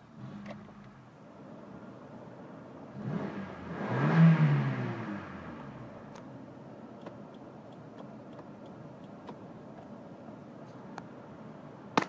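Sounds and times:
car engine idling: 5.0 - 11.9.

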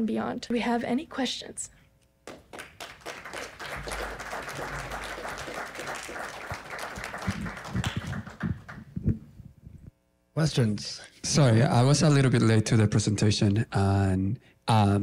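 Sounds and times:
audience applauding: 2.3 - 9.0.

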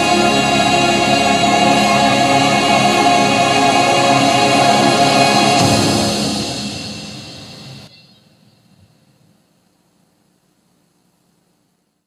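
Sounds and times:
choir singing held chords: 0.0 - 7.9
musical soundtrack: 0.0 - 7.9.

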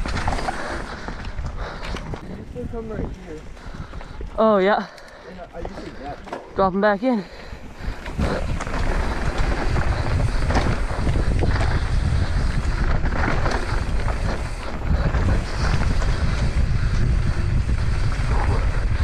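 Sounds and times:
bike knocking and rattling: 0.0 - 19.0
wind buffeting microphone: 0.0 - 19.0
tyres rumbling on dirt: 5.3 - 19.0.

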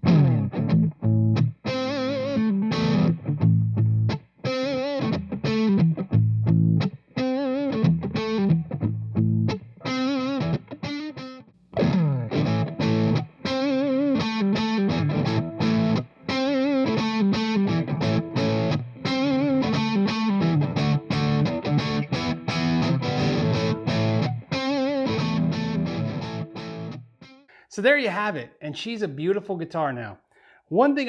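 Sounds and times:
distorted electric guitar riff: 0.0 - 27.2.

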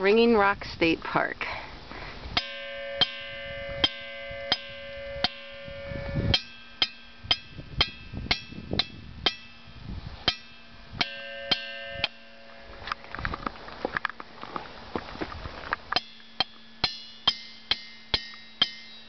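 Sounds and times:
hammer striking ringing rock: 2.4 - 12.7, 16.0 - 19.0.

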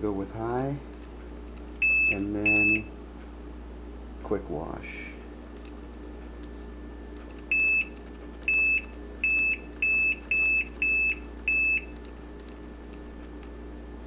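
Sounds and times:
short high beeps: 1.8 - 2.9.

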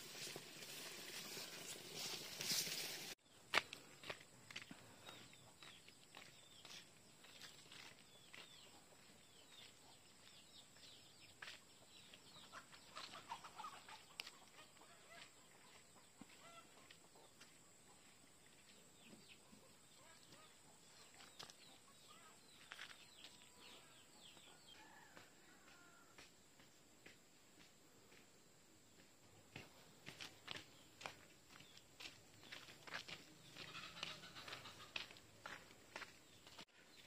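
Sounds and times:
clucking: 12.4 - 17.3, 33.5 - 35.6
birds chirping: 29.5 - 37.0.

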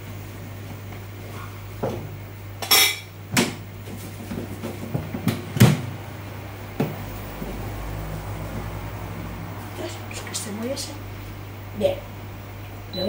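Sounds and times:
steady low hum: 0.0 - 13.0
dishes and utensils clinking: 2.6 - 3.1.

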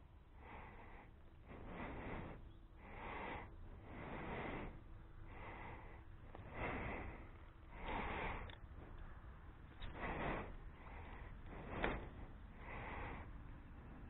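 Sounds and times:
person breathing close: 0.0 - 14.0.

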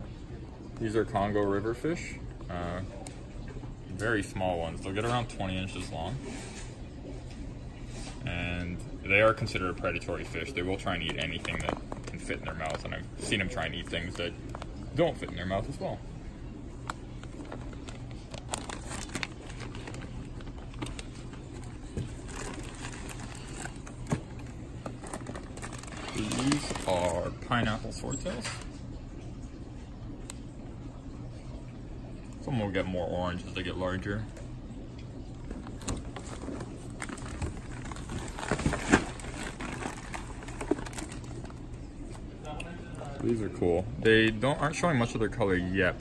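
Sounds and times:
low steady hum: 0.0 - 46.0
plastic bags crinkling: 10.2 - 16.0, 16.8 - 28.6, 35.5 - 42.2
packing rustle: 16.9 - 27.3, 35.6 - 41.7.

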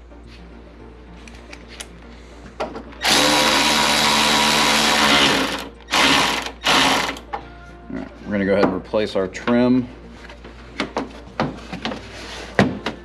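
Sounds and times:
electric ratchet driving bolt: 3.0 - 7.2.

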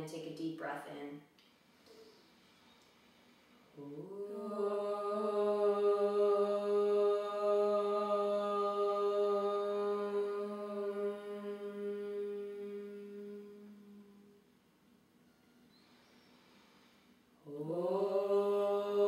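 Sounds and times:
women chanting om: 3.7 - 14.4, 17.4 - 19.0.

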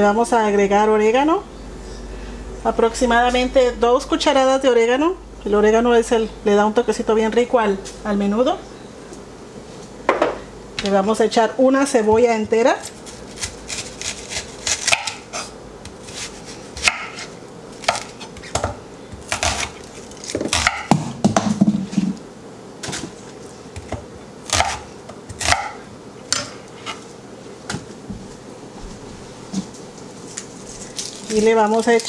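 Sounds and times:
knife chopping on wooden board: 13.4 - 19.7, 20.3 - 22.0, 23.8 - 26.5.

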